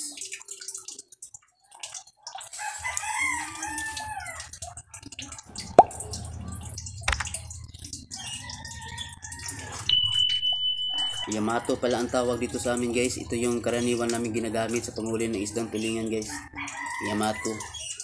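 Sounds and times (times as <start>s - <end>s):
rooster crowing: 2.6s - 4.5s, 8.3s - 12.8s, 16.3s - 17.9s
steady high beep: 9.9s - 11.3s.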